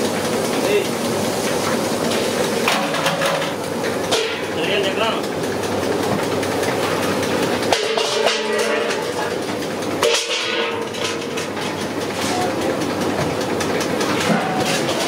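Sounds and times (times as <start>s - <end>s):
oil sizzling in deep fryer: 0.0s - 5.0s, 6.7s - 11.9s.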